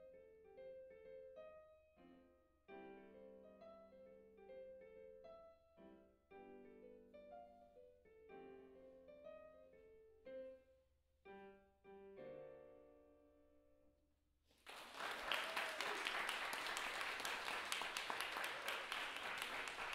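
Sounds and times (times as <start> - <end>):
digital piano blues chords: 0.0 - 13.6
audience applause: 14.6 - 19.9.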